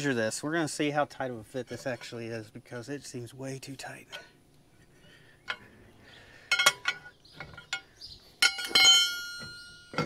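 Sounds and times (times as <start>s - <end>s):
ringing metallic clank: 6.4s - 10.0s.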